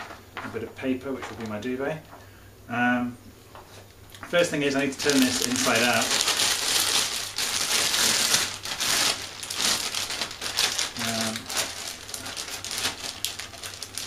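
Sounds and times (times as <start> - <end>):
plastic bag crinkling: 4.3 - 14.0.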